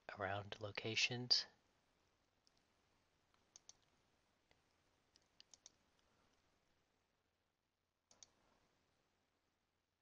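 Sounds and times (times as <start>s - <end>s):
faint computer mouse clicks: 3.3s - 3.9s, 4.5s - 6.4s, 8.1s - 8.4s.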